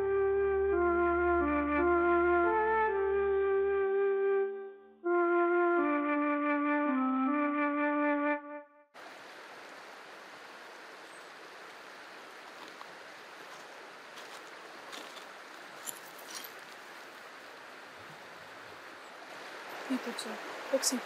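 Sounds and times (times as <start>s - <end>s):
flute tune: 0.0s - 8.9s
river water rushing: 9.0s - 21.0s.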